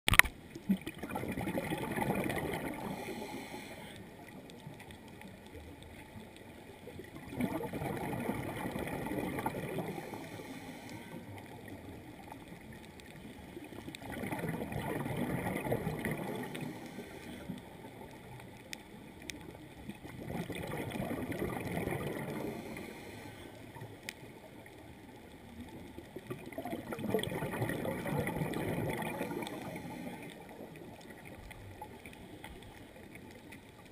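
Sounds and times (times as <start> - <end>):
diver's exhaled bubbles gurgling: 0.1 - 3.6, 4.3 - 23.1, 23.7 - 33.9
soft underwater hiss: 0.4 - 33.9.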